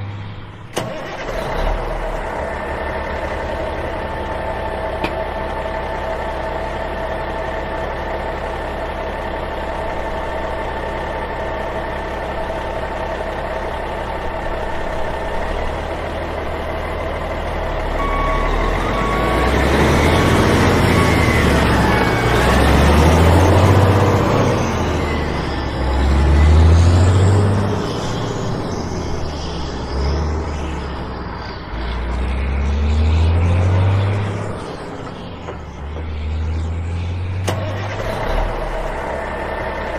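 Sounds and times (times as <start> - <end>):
heavy truck engine revving: 0.0 - 39.9
short beeps: 18.0 - 20.1.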